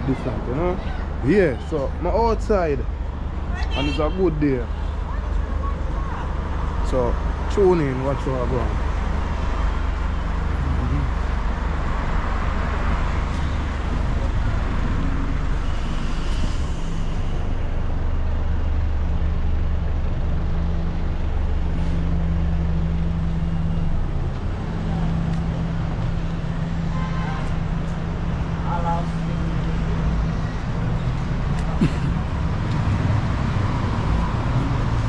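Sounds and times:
traffic engines rumbling: 0.0 - 35.0.

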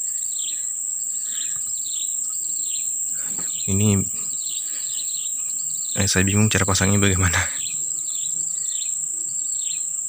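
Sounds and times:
high-pitched insect drone: 0.0 - 10.0.

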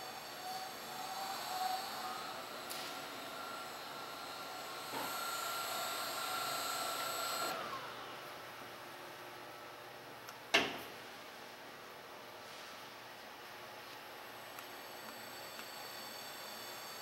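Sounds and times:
hiss: 0.0 - 7.5
electric machinery whining: 0.0 - 8.0.

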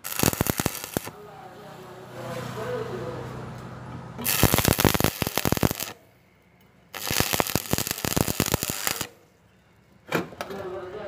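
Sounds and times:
welding arc crackling: 0.0 - 1.2, 4.2 - 6.0, 6.9 - 9.2.

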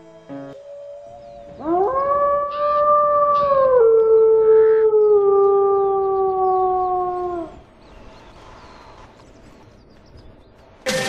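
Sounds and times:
wolf howling: 0.8 - 7.6.

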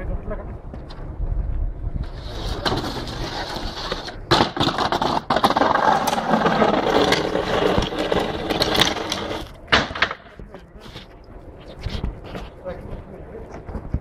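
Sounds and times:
boxes and pallets scraping and rattling: 2.0 - 11.1.

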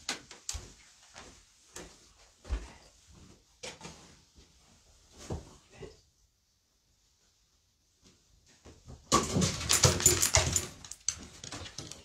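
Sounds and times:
objects knocking and thudding: 8.7 - 12.0.

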